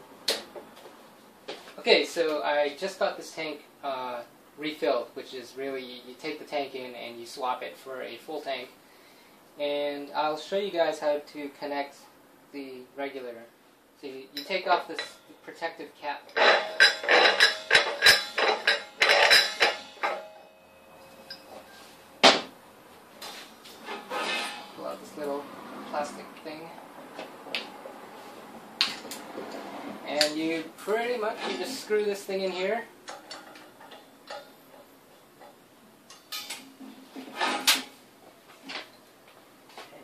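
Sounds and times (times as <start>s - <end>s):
metal cap scraping and clinking: 16.3s - 21.9s, 23.8s - 25.0s.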